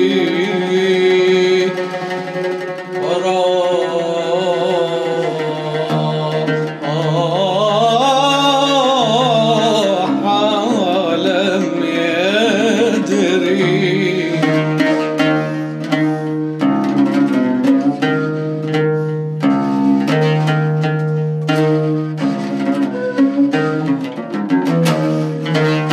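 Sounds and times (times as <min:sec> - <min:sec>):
man singing ornamented melody: 0:00.0 - 0:15.1
plucked string notes: 0:00.0 - 0:25.9.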